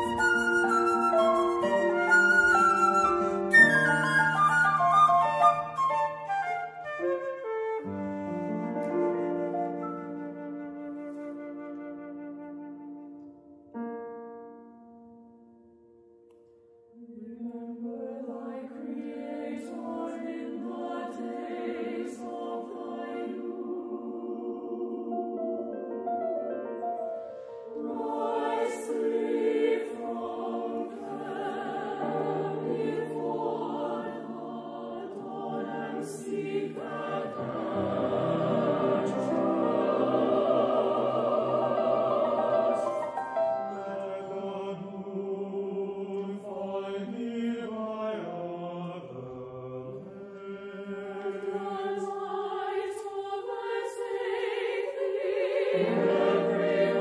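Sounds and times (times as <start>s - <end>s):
choir singing held chords: 0.0s - 4.9s, 17.0s - 26.4s, 27.1s - 57.0s.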